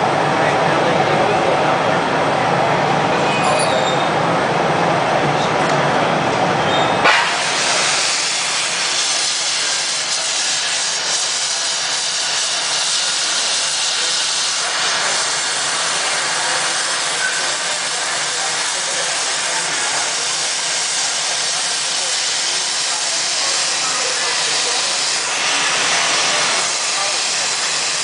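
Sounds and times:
gas torch hissing: 6.7s - 28.0s.

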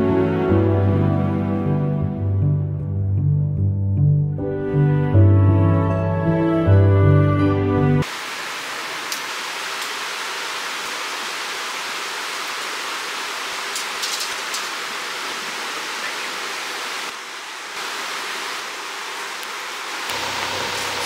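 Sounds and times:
mountain stream rushing: 8.0s - 21.0s.

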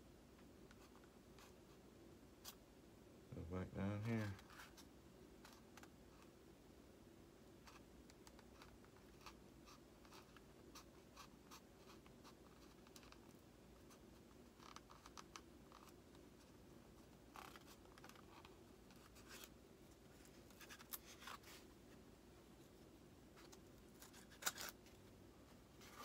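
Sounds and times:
faint steady hum: 0.0s - 26.0s.

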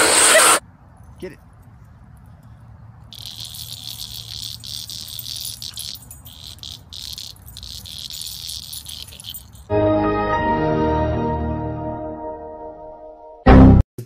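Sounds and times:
insects trilling: 3.1s - 9.7s.

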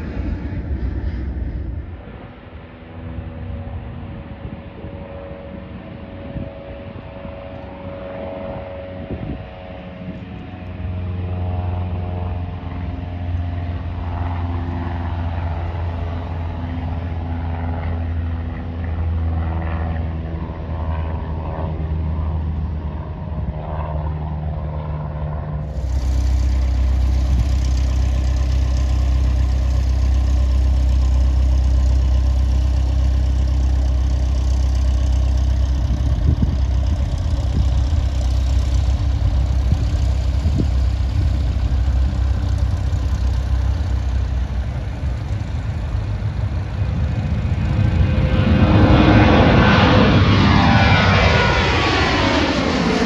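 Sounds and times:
aircraft engine noise: 0.0s - 53.0s
piston engine idling: 25.6s - 48.3s.

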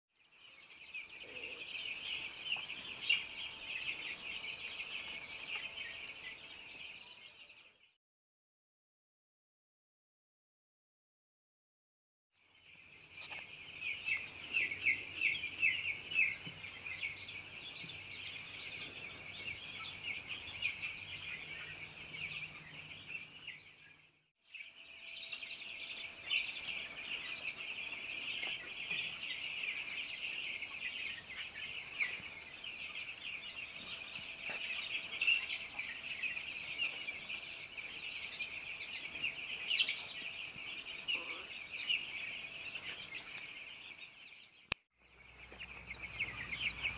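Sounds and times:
chicks peeping: 0.2s - 7.9s, 12.6s - 46.9s.

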